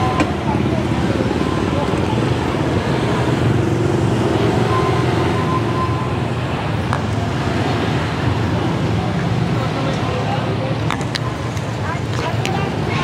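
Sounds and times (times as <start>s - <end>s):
motorcycles passing: 0.0s - 13.0s
road noise: 0.0s - 13.0s.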